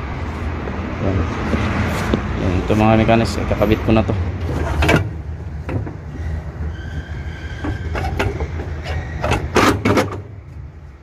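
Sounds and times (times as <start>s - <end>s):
faint squeaking scrape: 6.1s - 9.6s
sharp metal knocks: 7.6s - 10.3s.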